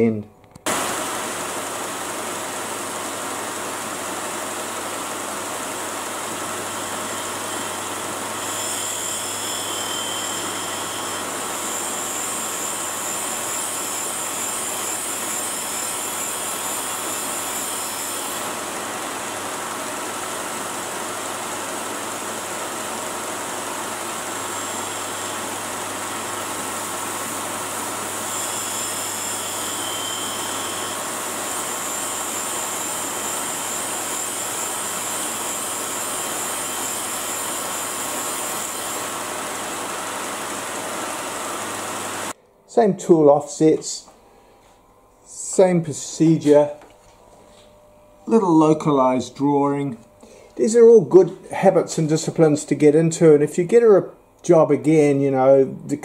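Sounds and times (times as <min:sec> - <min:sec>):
high hiss of cutting wheel: 0:05.0 - 0:42.4
grinder wheel grinding steel: 0:05.4 - 0:42.4.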